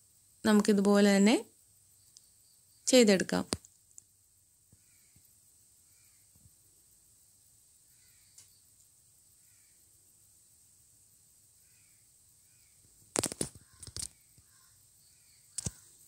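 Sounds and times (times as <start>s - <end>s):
faint bird calls: 4.7s - 6.4s, 7.8s - 10.0s, 11.6s - 16.0s.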